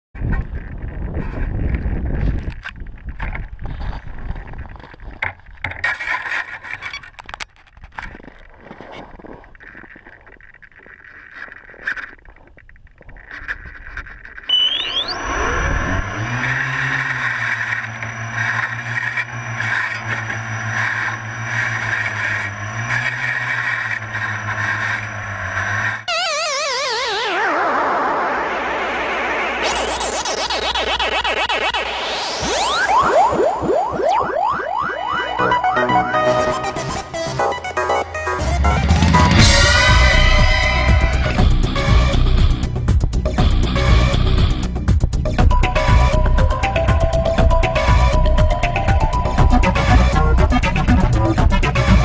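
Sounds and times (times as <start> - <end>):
skis scraping over snow: 8.0 - 26.1
electric motor and propeller whine: 14.5 - 44.9, 45.5 - 52.0.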